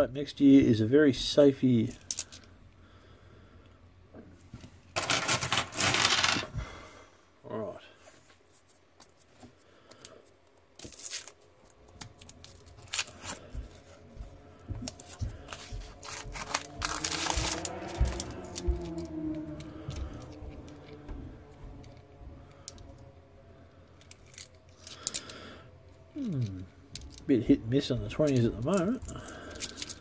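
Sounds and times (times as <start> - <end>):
paper tearing and crinkling: 15.5 - 18.2.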